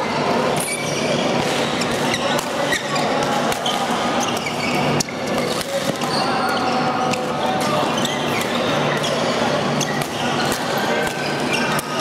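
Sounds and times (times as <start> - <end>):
sports hall hubbub: 0.0 - 12.0
rackets hitting shuttlecock: 1.3 - 6.2, 9.8 - 12.0.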